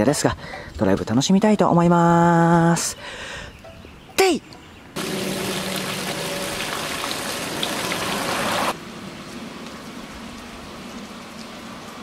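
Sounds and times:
water pouring into basin: 5.0s - 8.8s.

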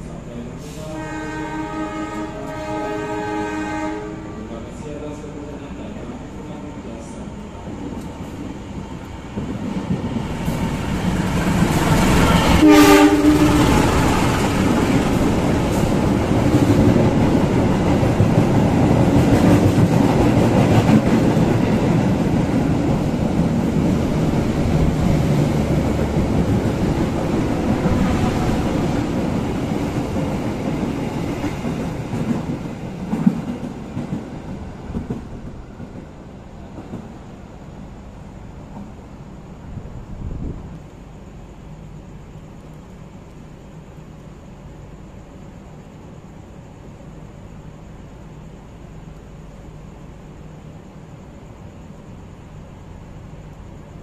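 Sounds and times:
train rumble and wheel clatter: 0.0s - 54.0s
train horn blast: 0.6s - 4.6s, 12.2s - 14.0s.

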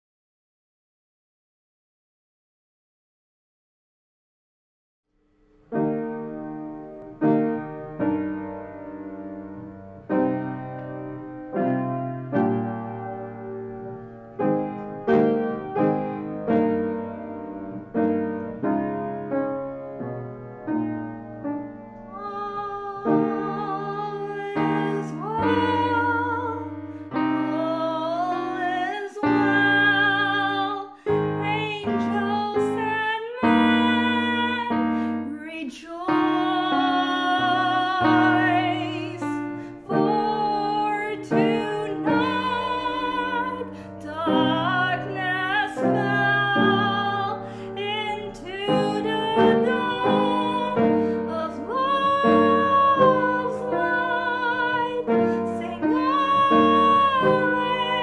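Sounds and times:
piano accompaniment: 5.6s - 58.0s
woman singing: 22.1s - 58.0s.

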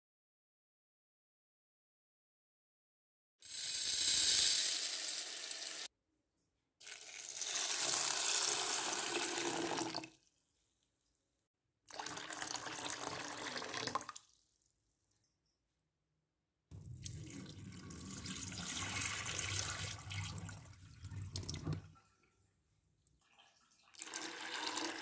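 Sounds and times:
tap water pouring into bowl: 6.8s - 10.2s, 11.9s - 14.3s, 16.7s - 22.0s, 23.2s - 25.0s.

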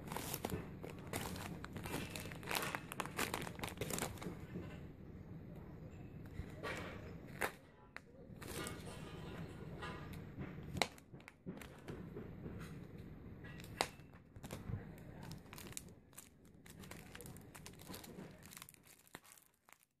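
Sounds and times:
plastic packaging crinkling: 0.0s - 4.6s, 13.6s - 20.0s.

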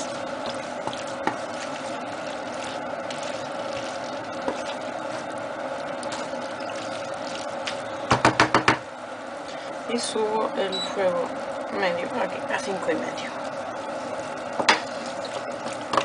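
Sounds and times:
spatula knocking on a pan: 8.1s - 8.8s.

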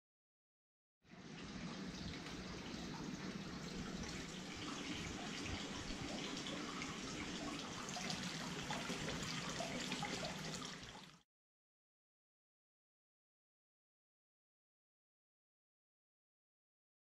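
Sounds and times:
water pouring into bathtub: 1.1s - 11.2s.

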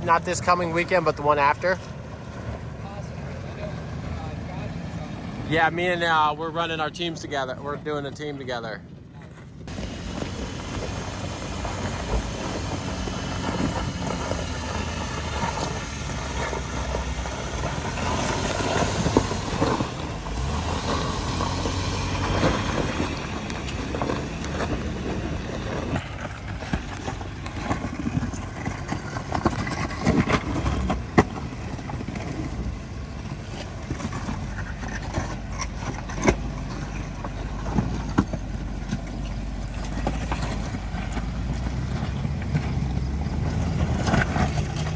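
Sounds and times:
off-road vehicle engine under load: 0.0s - 44.9s
stones knocking under tyres: 9.6s - 44.9s.

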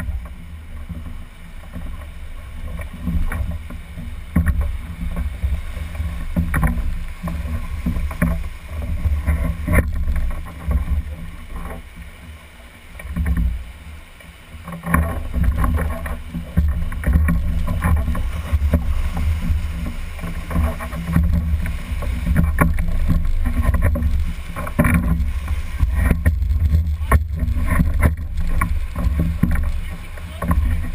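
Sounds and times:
rushing whitewater: 0.0s - 30.9s.

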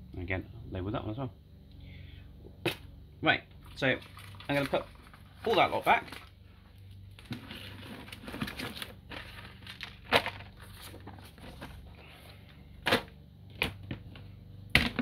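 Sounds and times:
plastic bags rustling: 3.7s - 13.1s
items knocking in plastic tub: 14.7s - 15.0s.

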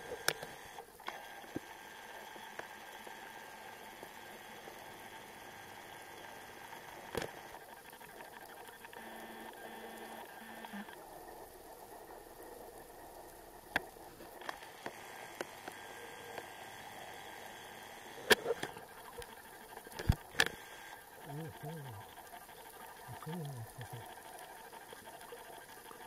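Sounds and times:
faint underwater hiss: 0.0s - 26.0s
sharp clicks: 18.1s - 22.2s
faint low pulsing tone: 20.1s - 24.8s.

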